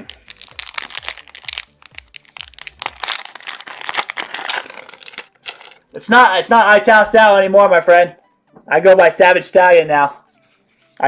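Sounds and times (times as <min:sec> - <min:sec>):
foil wrapper crinkling: 0:00.0 - 0:05.9.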